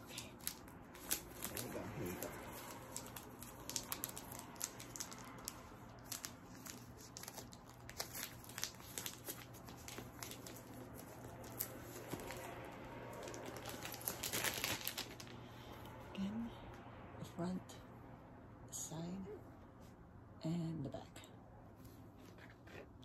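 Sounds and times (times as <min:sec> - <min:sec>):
plastic wrapping crinkling: 0:00.0 - 0:15.4.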